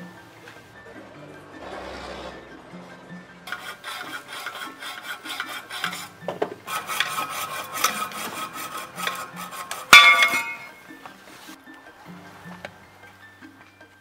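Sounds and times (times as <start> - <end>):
hand tool rasping on steel pipe: 3.5 - 10.8.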